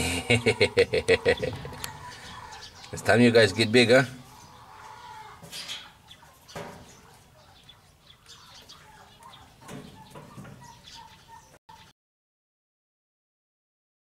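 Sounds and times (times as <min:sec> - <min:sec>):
faint bird calls: 0:00.0 - 0:03.2.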